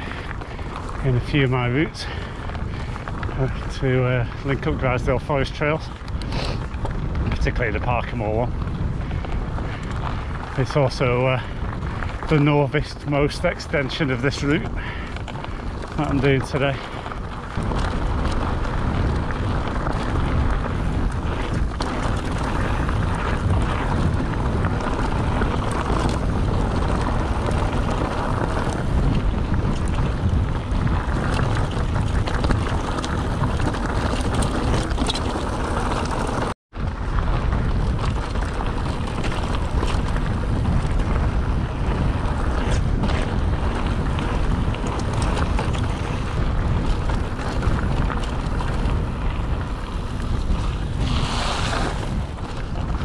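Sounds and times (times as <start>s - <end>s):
clicks and knocks from bike and stones: 0.0s - 53.0s
mountain bike rattling on trail: 0.0s - 53.0s
wind on microphone: 0.0s - 53.0s.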